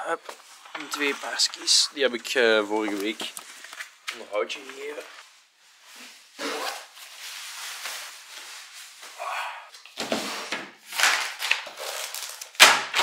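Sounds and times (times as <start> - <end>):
papers rustling: 0.2 - 5.3.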